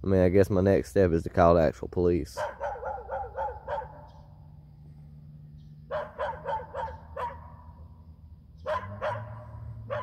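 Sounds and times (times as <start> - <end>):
dog barking: 2.4 - 4.2, 5.9 - 7.7, 8.6 - 10.0.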